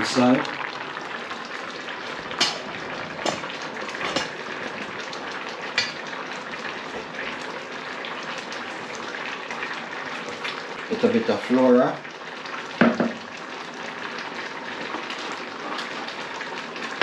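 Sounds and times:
pots simmering with bubbling hiss: 0:00.0 - 0:17.0.

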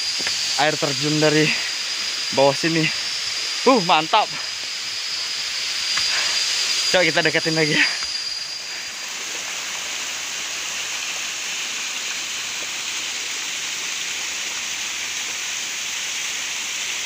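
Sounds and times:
waterfall rushing into pool: 0:00.0 - 0:17.0.

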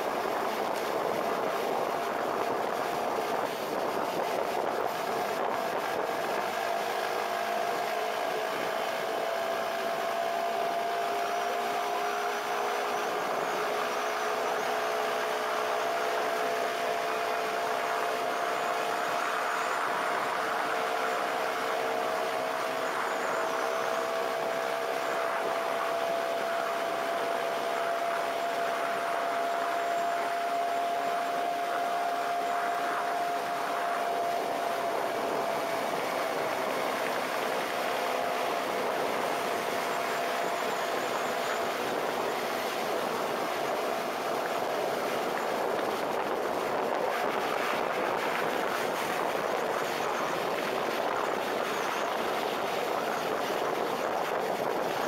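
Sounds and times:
steady whining tone: 0:00.0 - 0:55.0
wind and road noise: 0:00.0 - 0:55.0.

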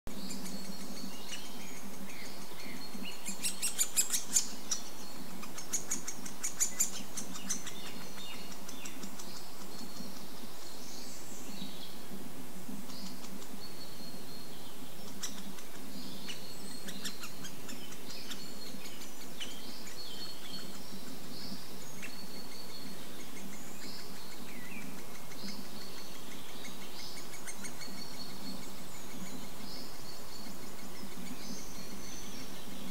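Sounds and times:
woodpecker chick calling: 0:00.3 - 0:10.3, 0:15.0 - 0:29.6.

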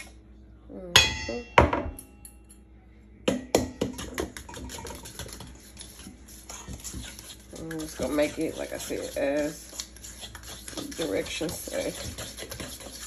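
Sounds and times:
metal bowl clanking: 0:01.0 - 0:02.6
fork scraping metal bowl: 0:03.9 - 0:13.0.

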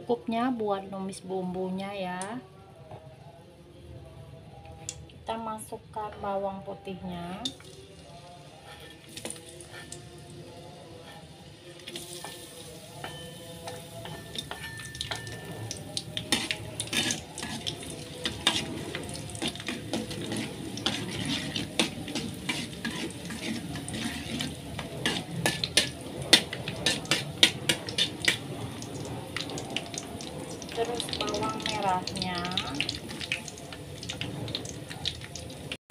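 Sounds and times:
garlic sizzling in oil: 0:07.4 - 0:35.8
spatula scraping and clacking pan: 0:08.6 - 0:10.1, 0:12.0 - 0:35.0.

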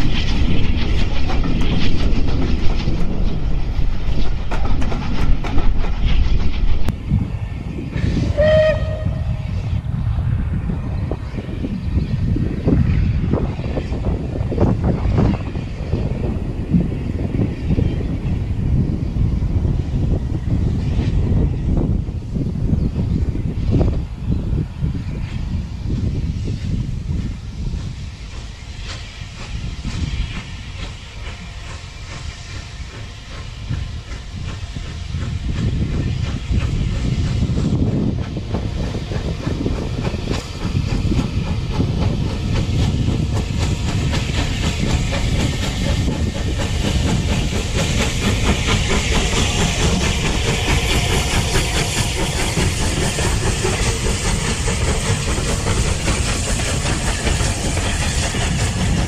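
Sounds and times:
train wheels clattering over rail joints: 0:00.0 - 0:06.9, 0:27.2 - 0:59.0
steam locomotive hiss and exhaust: 0:00.0 - 0:59.0.

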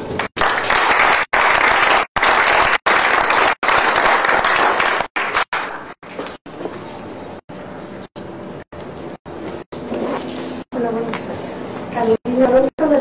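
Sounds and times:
audience applauding: 0:00.2 - 0:06.0.

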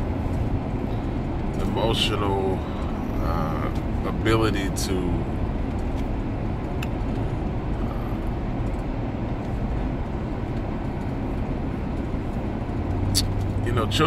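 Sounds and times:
car rumble from inside cabin: 0:00.0 - 0:14.0.

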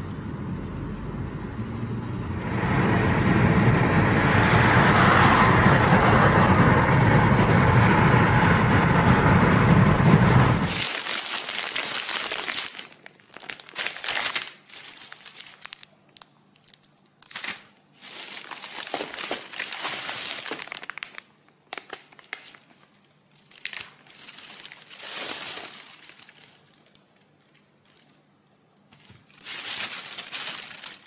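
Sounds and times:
plastic bags rustling: 0:10.6 - 0:31.0.

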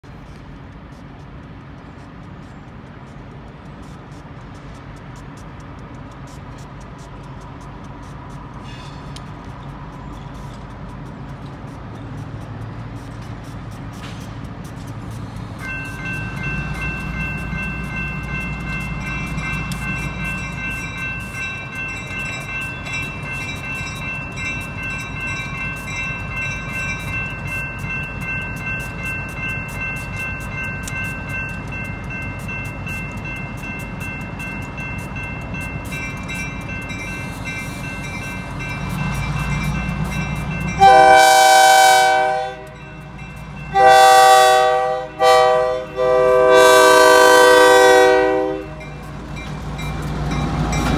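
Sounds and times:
diesel locomotives rumbling: 0:00.0 - 0:50.9
crossing warning bell ringing: 0:00.7 - 0:50.9
train air horn blasts: 0:40.8 - 0:42.8, 0:43.7 - 0:49.0.

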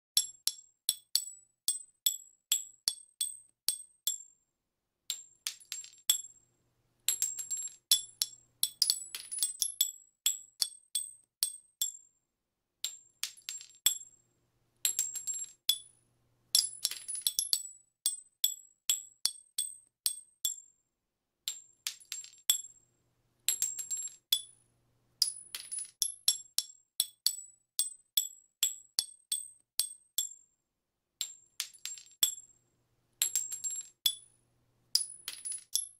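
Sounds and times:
shell casings clinking on hard surface: 0:05.1 - 0:06.3, 0:07.1 - 0:12.0, 0:12.8 - 0:14.1, 0:14.8 - 0:20.6, 0:21.5 - 0:22.8, 0:23.5 - 0:24.6, 0:25.2 - 0:30.4, 0:31.2 - 0:32.6, 0:33.2 - 0:35.9.

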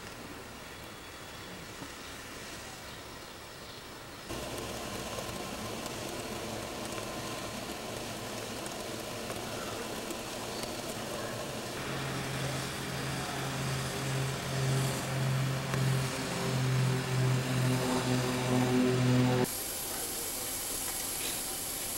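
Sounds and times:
steady hiss of escaping steam: 0:04.3 - 0:18.0, 0:19.4 - 0:21.9
low pulsing throb: 0:04.3 - 0:19.5.

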